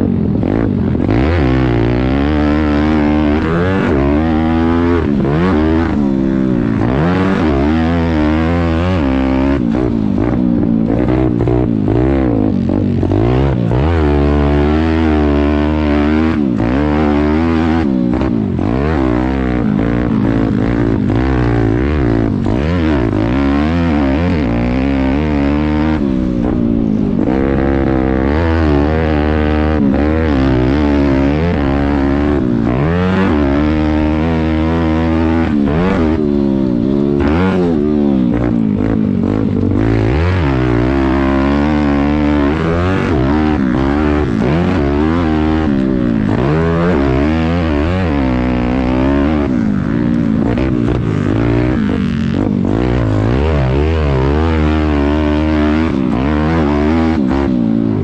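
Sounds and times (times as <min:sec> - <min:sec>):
motorbike engine revving: 0:00.0 - 0:58.0.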